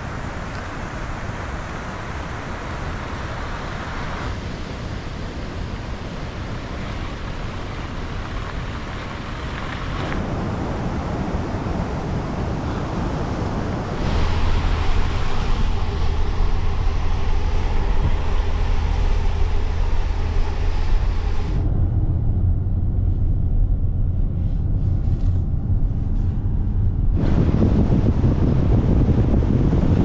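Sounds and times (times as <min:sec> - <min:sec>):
car driving on wet road: 0:00.0 - 0:21.7
wind and rain on microphone: 0:00.0 - 0:30.0
low rumble: 0:06.4 - 0:30.0.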